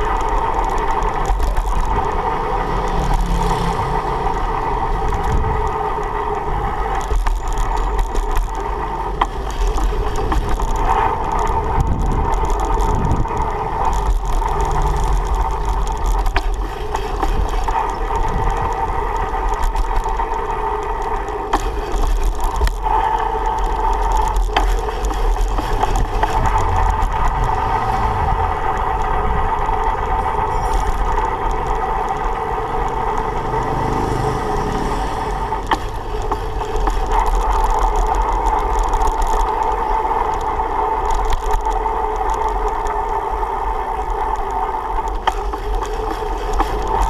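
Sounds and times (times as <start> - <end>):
bike rattles and knocks: 0.0 - 47.0
wind and road rumble: 0.0 - 47.0.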